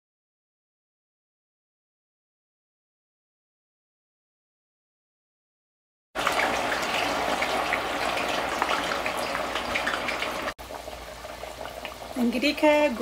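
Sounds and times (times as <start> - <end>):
potatoes sizzling in hot oil: 6.2 - 13.0.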